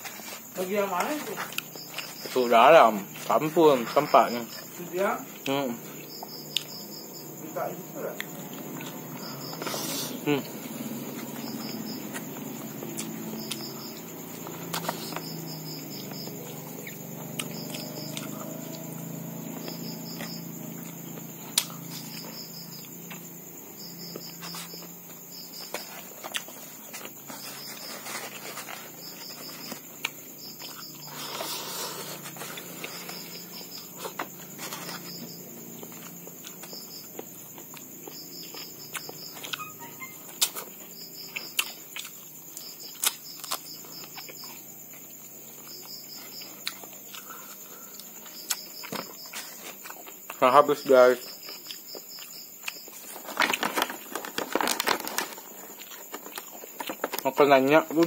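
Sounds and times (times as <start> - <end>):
insects chirping: 0.0 - 58.0.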